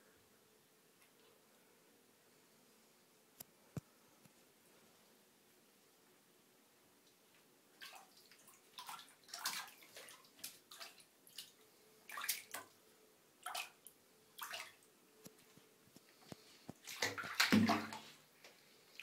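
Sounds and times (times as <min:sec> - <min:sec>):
cats splashing in water: 0:07.8 - 0:12.7, 0:13.4 - 0:13.8, 0:14.4 - 0:14.8, 0:16.8 - 0:18.2.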